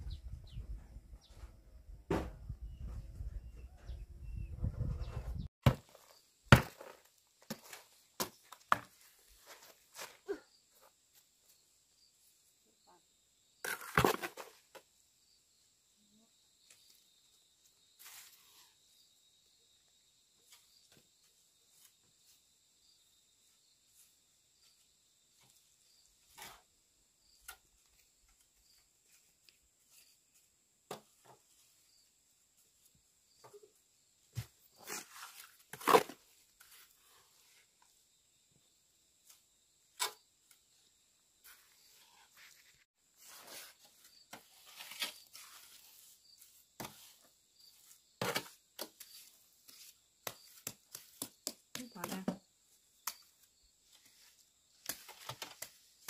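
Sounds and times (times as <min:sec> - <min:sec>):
hand work knocks and scrapes: 0:02.1 - 0:04.0.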